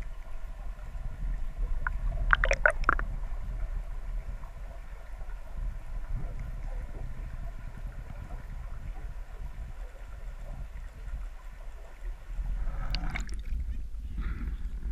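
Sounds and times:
muffled underwater rumble: 0:00.0 - 0:14.9
water splashing and sloshing: 0:01.8 - 0:03.3, 0:06.4 - 0:13.9.

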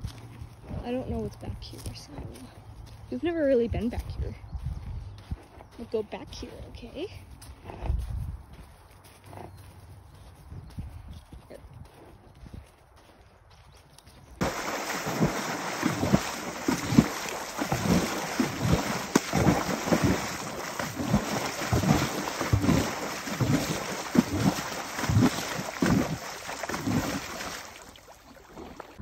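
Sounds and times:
horse splashing through water: 0:14.4 - 0:29.0
rushing creek water: 0:14.4 - 0:29.0.

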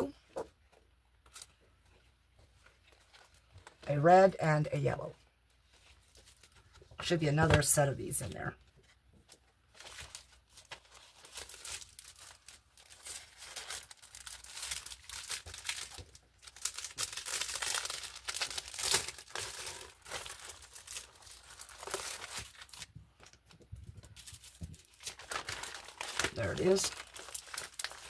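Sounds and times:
plastic bag crinkling: 0:09.7 - 0:28.0.

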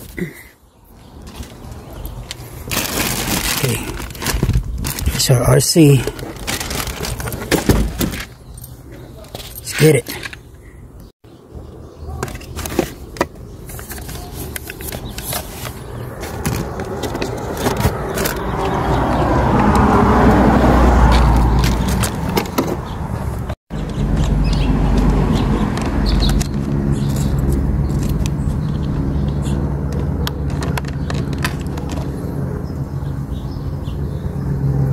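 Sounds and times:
clicks and knocks of handling: 0:29.9 - 0:32.1.

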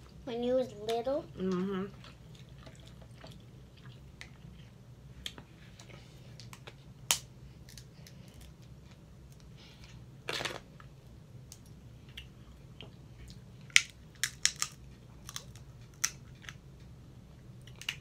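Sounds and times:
faint steady hum: 0:00.0 - 0:18.0
crab shell clicks and cracks: 0:13.7 - 0:16.6.

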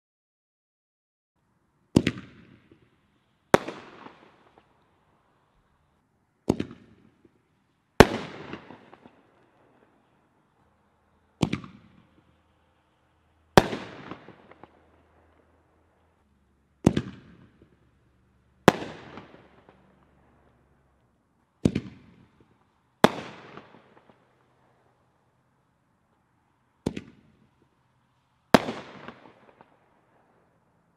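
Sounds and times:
firework launch bangs: 0:11.4 - 0:12.2, 0:16.8 - 0:17.8, 0:21.6 - 0:24.2.

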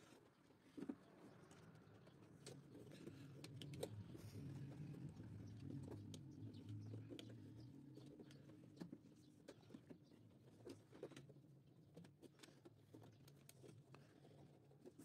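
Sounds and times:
clicks and taps of wires: 0:00.8 - 0:04.0.

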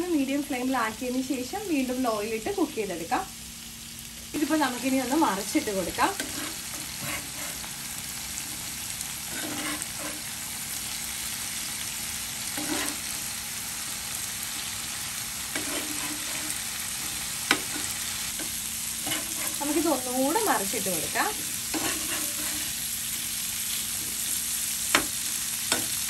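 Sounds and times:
prawns sizzling in oil: 0:00.0 - 0:26.0
spatula scraping pan: 0:06.0 - 0:07.8, 0:08.6 - 0:10.3, 0:12.4 - 0:13.2, 0:15.4 - 0:20.6, 0:21.3 - 0:22.9.

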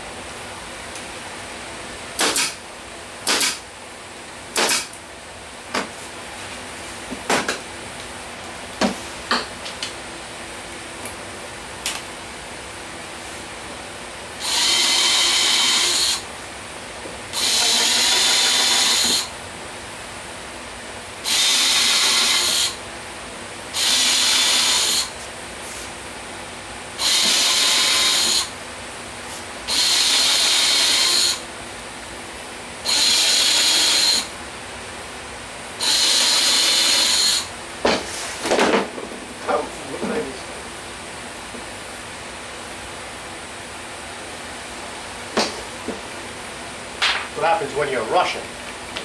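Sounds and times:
cordless drill drilling into wood: 0:14.4 - 0:16.2, 0:17.4 - 0:19.3, 0:21.2 - 0:22.8, 0:23.8 - 0:25.1, 0:27.0 - 0:28.5, 0:29.7 - 0:31.4, 0:32.8 - 0:34.3, 0:35.8 - 0:37.5.

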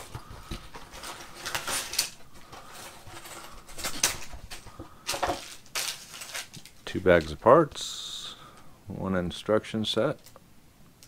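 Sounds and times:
plastic bricks clattering: 0:00.0 - 0:07.4
plastic bags rustling: 0:00.0 - 0:07.7.

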